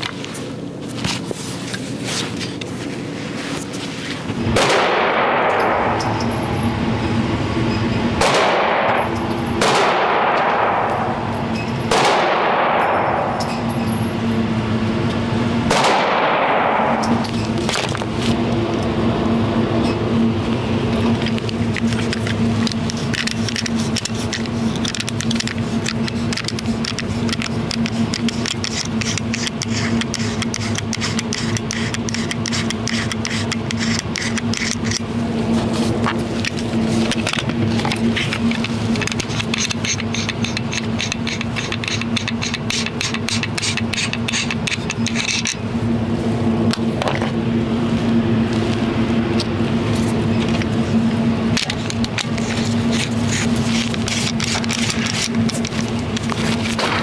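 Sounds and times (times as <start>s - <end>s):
clicks and scrapes of handled pistols: 0.0s - 4.3s, 16.9s - 18.4s, 20.9s - 45.7s, 49.4s - 57.0s
ventilation system humming: 0.0s - 57.0s.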